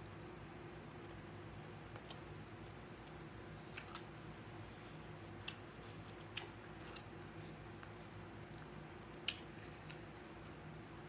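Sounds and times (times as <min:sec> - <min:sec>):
faint chewing: 0:05.4 - 0:11.0.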